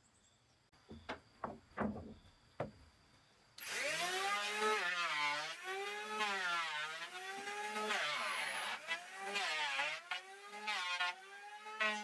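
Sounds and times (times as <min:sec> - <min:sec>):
sharp knocks: 0:00.9 - 0:02.8
power tool running under load: 0:03.6 - 0:12.0.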